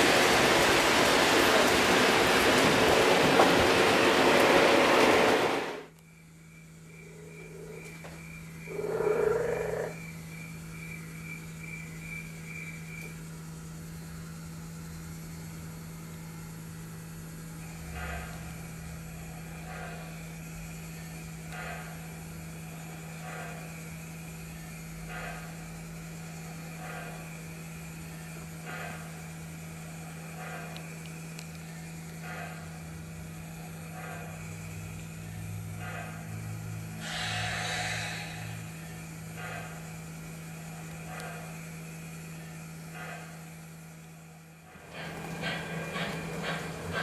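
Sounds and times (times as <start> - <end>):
loud hiss: 35.9 - 43.6.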